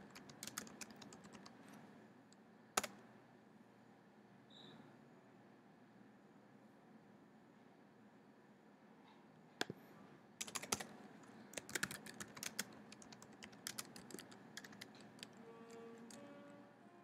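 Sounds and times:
keyboard typing: 0:00.0 - 0:01.7, 0:10.4 - 0:16.3.

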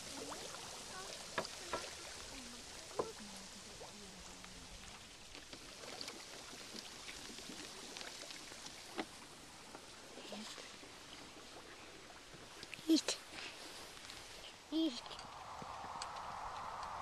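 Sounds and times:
water splashing and washing: 0:00.0 - 0:17.0.

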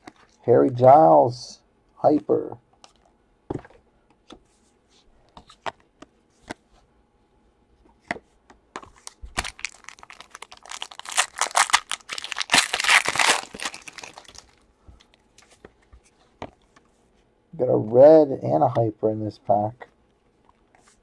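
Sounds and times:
foil wrapper crinkling and tearing: 0:09.0 - 0:14.6.

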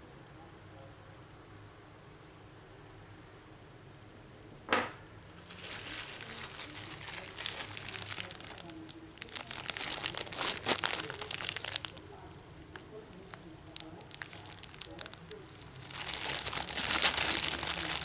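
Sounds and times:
plastic bag crinkling: 0:05.3 - 0:18.0.

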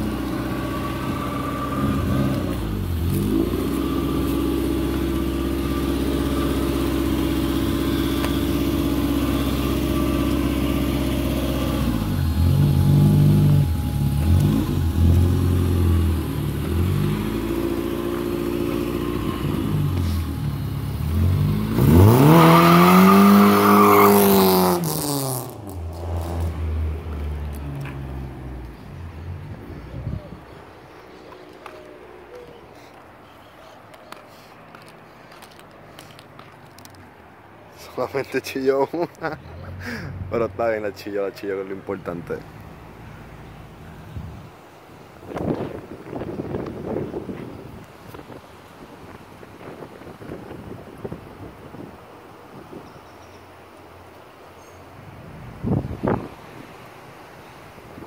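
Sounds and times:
car engine idling and revving: 0:00.0 - 0:37.5.

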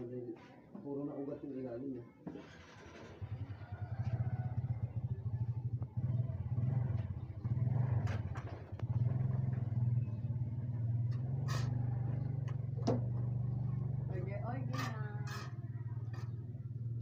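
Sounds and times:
engine running: 0:02.7 - 0:17.0.

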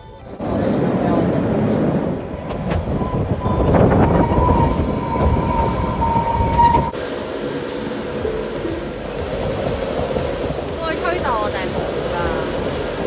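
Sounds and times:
train rumbling: 0:00.0 - 0:13.0
smooth rushing: 0:00.3 - 0:13.0.

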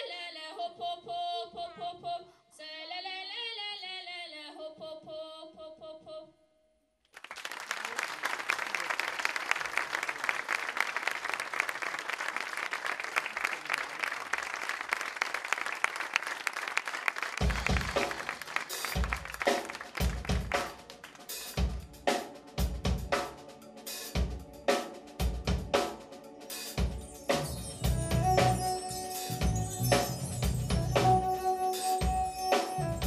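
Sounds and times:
audience applause: 0:07.1 - 0:21.6
live band playing: 0:17.2 - 0:33.0.

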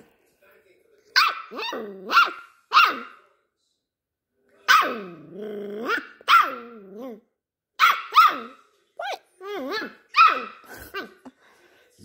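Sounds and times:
puppy barking: 0:01.1 - 0:03.2, 0:04.7 - 0:05.2, 0:05.8 - 0:07.1, 0:07.8 - 0:11.2.

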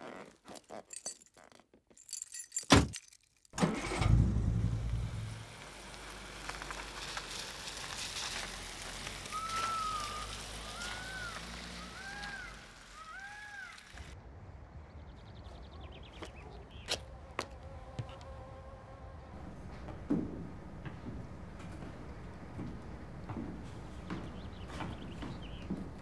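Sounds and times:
car driving by: 0:03.6 - 0:14.2, 0:17.0 - 0:26.0
road hiss: 0:03.6 - 0:14.4, 0:19.0 - 0:26.0
rising and falling calls: 0:09.3 - 0:14.2, 0:19.3 - 0:26.0.

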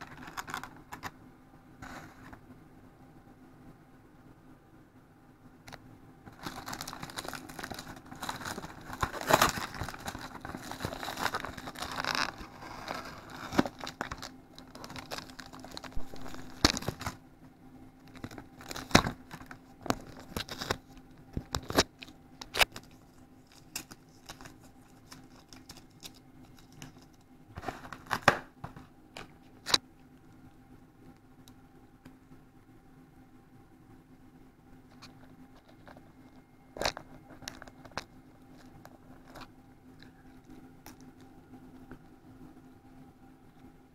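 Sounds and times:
plastic packaging crinkling: 0:00.0 - 0:01.1, 0:05.7 - 0:17.2, 0:18.0 - 0:29.8, 0:34.9 - 0:41.3
faint steady hum: 0:00.0 - 0:43.9.

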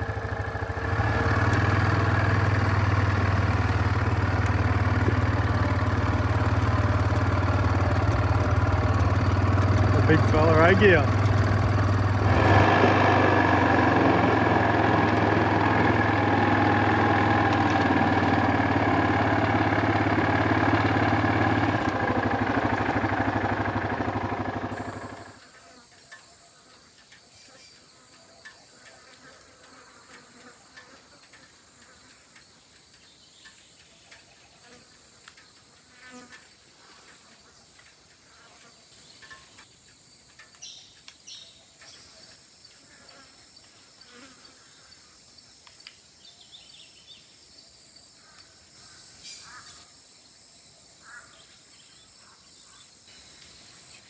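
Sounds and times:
faint insects: 0:00.0 - 0:12.2, 0:24.7 - 0:54.0
quad bike engine running: 0:00.0 - 0:42.2
small scattered ticks: 0:24.7 - 0:54.0.

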